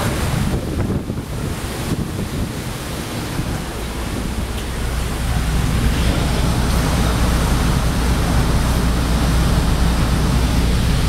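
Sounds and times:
heavy rain hiss: 0:00.0 - 0:11.0
deep low rumble: 0:03.5 - 0:11.0.

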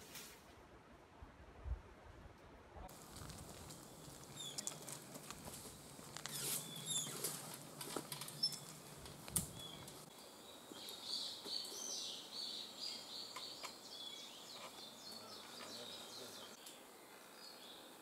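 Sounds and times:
rustling through dry brush: 0:02.9 - 0:11.7
bird singing: 0:03.8 - 0:04.9, 0:05.6 - 0:18.0.

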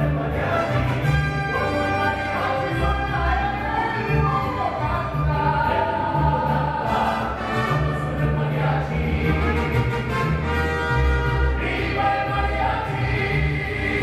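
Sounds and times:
plucked bass line: 0:00.0 - 0:14.0.

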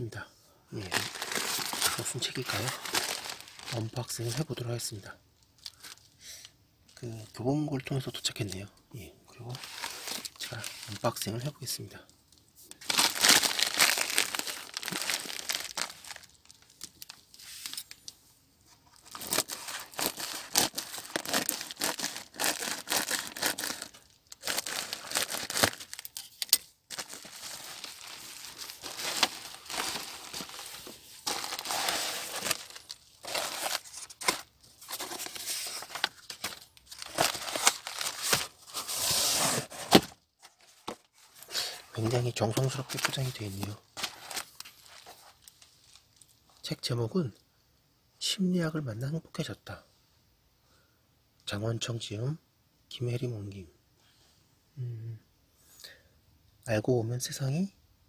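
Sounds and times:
bubble wrap tearing and crinkling: 0:00.8 - 0:04.5, 0:09.5 - 0:11.2, 0:12.8 - 0:18.0, 0:19.0 - 0:46.1.

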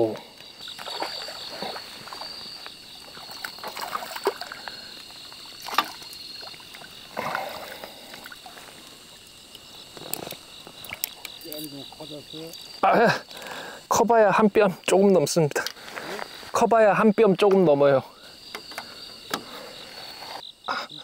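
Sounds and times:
crickets chirping: 0:00.0 - 0:21.0
water splashing: 0:00.5 - 0:12.6.

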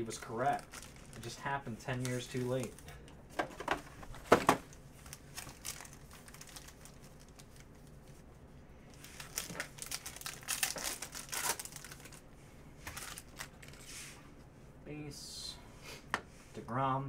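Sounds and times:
foil wrappers crinkling: 0:00.0 - 0:02.9, 0:04.1 - 0:08.2, 0:08.9 - 0:13.9
foil pack tearing open: 0:05.1 - 0:07.6, 0:09.1 - 0:12.2.

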